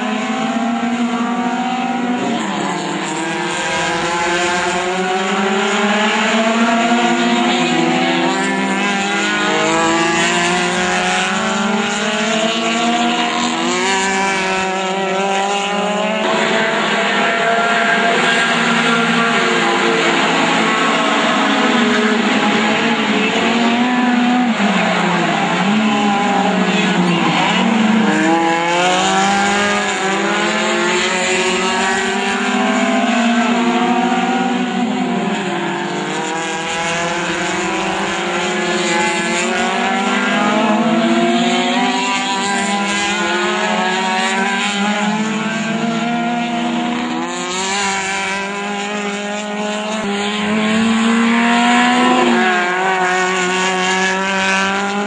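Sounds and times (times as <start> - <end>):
race car engines revving: 0.0 - 55.0.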